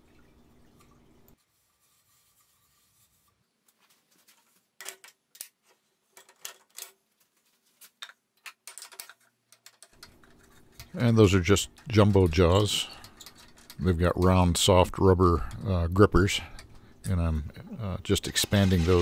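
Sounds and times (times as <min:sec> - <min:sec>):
hand rubbing and scraping: 0:01.4 - 0:04.8, 0:09.8 - 0:14.5, 0:18.1 - 0:19.0.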